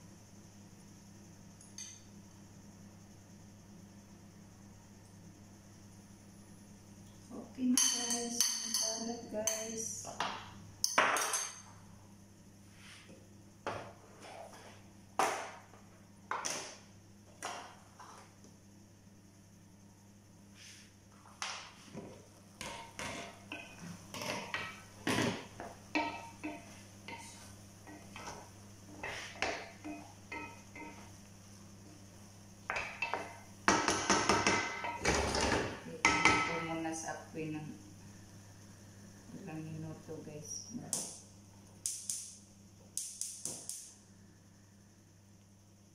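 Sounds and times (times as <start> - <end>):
utensils knocking on counter: 7.8 - 11.6, 22.6 - 27.3, 29.0 - 31.0, 32.7 - 36.8
wooden spoon stirring rice in pot: 25.5 - 31.2.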